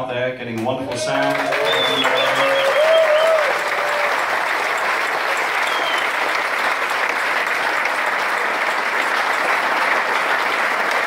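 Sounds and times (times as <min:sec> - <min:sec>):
audience applauding: 0:00.9 - 0:11.0
crowd whistle: 0:01.4 - 0:04.2, 0:05.5 - 0:06.4.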